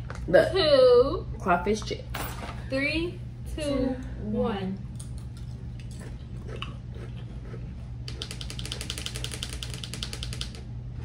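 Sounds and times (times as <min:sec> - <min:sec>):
steady low hum: 0:00.0 - 0:11.0
potato chips being chewed: 0:05.0 - 0:09.2.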